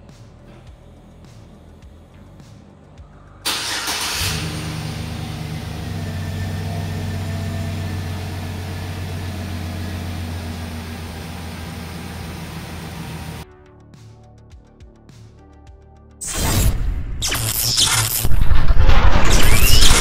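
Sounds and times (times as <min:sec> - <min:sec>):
engine idling: 0:00.4 - 0:13.4
engine cranking: 0:03.4 - 0:13.4.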